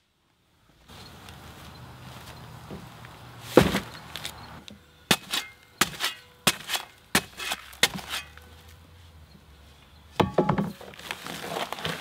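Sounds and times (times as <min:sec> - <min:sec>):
heavy sack thudding into wheelbarrow: 0:03.5 - 0:03.9
shovel chopping into paper sack: 0:03.5 - 0:04.4, 0:05.1 - 0:08.4, 0:10.7 - 0:12.0.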